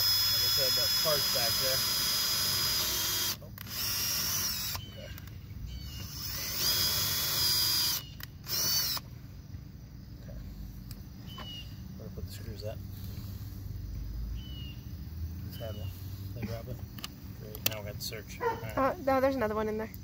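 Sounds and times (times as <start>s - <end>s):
cordless drill whining into metal: 0.0s - 5.0s, 5.8s - 9.1s.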